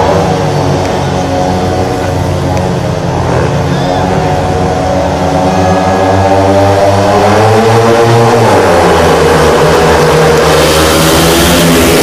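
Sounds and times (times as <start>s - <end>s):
motorcycles racing at high revs: 0.0s - 12.0s.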